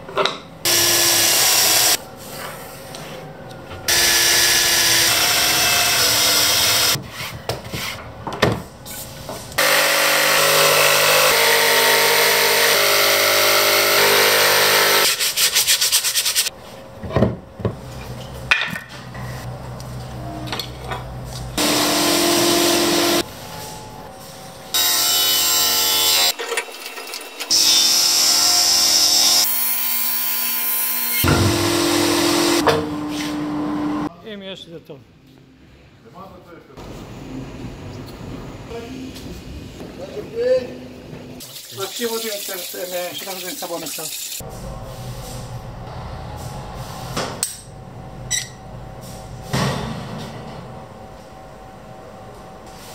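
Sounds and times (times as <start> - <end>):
table saw cutting: 0.6 - 2.0, 3.9 - 7.0, 9.6 - 15.4, 21.6 - 23.3, 24.7 - 34.1
jigsaw cutting plywood: 0.7 - 2.0, 3.9 - 7.0, 9.6 - 15.1, 21.6 - 23.2, 27.5 - 32.6.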